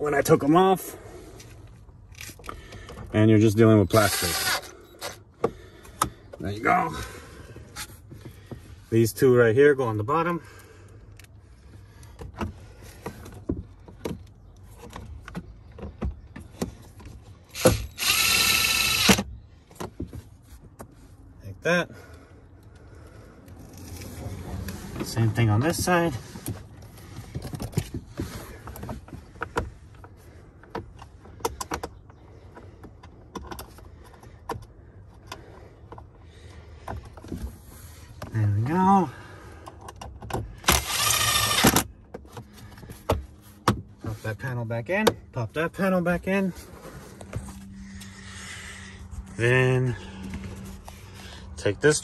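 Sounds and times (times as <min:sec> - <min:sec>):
power drill-driver running: 0:03.9 - 0:04.7, 0:17.5 - 0:19.3, 0:40.6 - 0:41.9.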